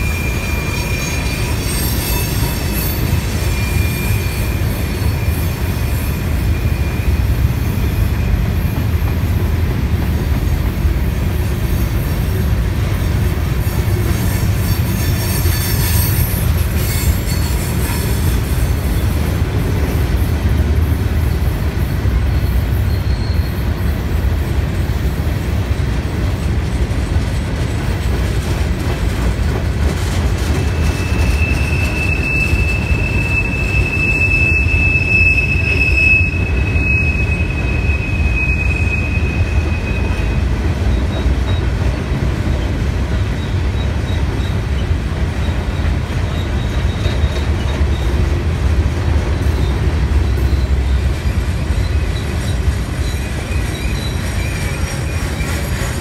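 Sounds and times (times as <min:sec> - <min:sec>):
high wheel squeal: 0:00.0 - 0:08.8, 0:13.5 - 0:19.2, 0:22.2 - 0:24.1, 0:30.6 - 0:41.8, 0:43.2 - 0:48.2, 0:49.4 - 0:56.0
train wheels rumbling on rail: 0:00.0 - 0:56.0.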